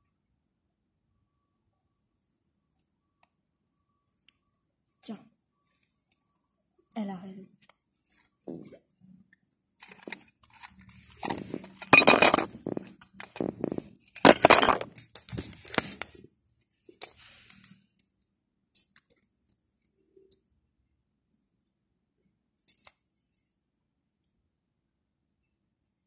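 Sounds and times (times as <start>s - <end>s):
plastic toys rustling and knocking: 9.8s - 16.2s.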